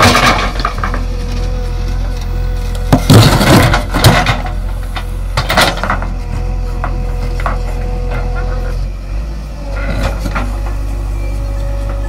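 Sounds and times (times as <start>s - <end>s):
bucket crunching rocks and earth: 0.0s - 8.4s
diesel engine running: 0.0s - 12.0s.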